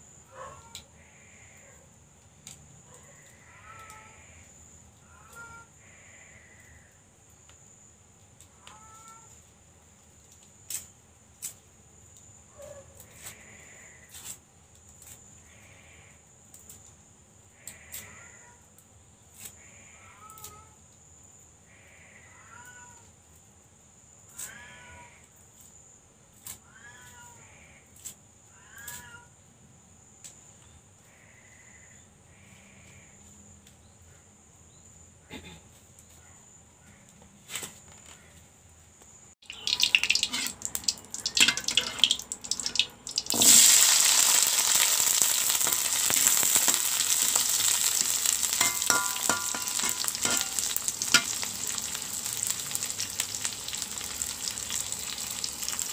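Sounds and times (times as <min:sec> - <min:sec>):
sharp clicks: 0:39.4 - 0:43.4.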